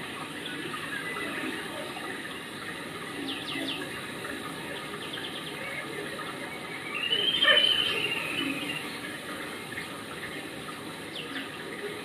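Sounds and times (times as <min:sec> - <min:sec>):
bird chirps: 0:06.9 - 0:09.0.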